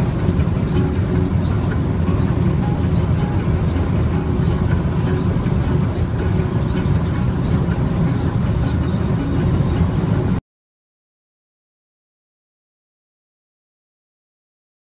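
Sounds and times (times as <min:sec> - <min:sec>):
car engine and road noise: 0:00.0 - 0:10.4.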